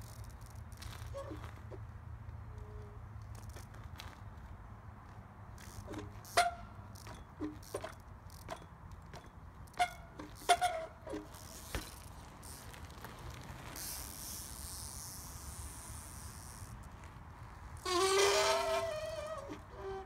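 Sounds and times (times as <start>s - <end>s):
bike knocks and clanks on asphalt: 0.3s - 2.0s, 3.2s - 14.8s.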